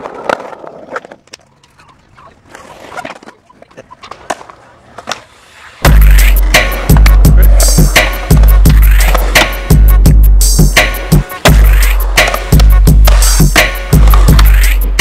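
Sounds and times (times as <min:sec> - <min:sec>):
music with heavy bass beat: 0:05.8 - 0:15.0.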